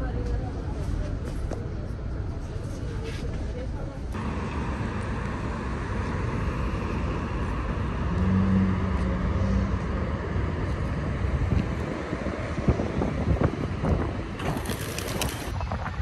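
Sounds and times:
vehicle engine hum: 0:00.0 - 0:16.0
cars passing: 0:04.2 - 0:14.5.

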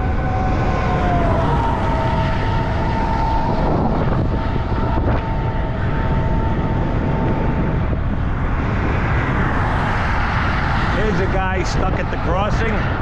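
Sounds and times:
wind and road noise: 0:00.0 - 0:13.0.

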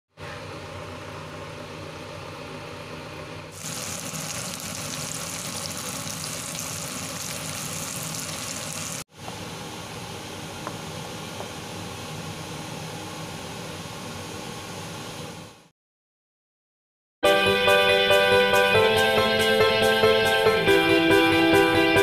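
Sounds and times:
shrimp sizzling in a frying pan: 0:03.6 - 0:09.0
soup bubbling at a boil: 0:03.6 - 0:09.1
stir-fry sizzling in a wok: 0:03.6 - 0:15.7.

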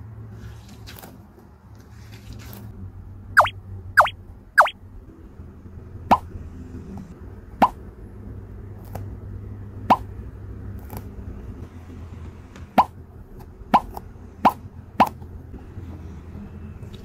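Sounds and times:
sticky toy squeezed plopping: 0:03.4 - 0:04.7.

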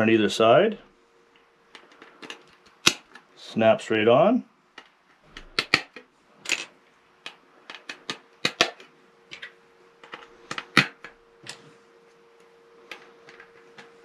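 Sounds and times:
faint steady hum: 0:00.0 - 0:14.0
plastic clips snapping: 0:01.8 - 0:03.3.

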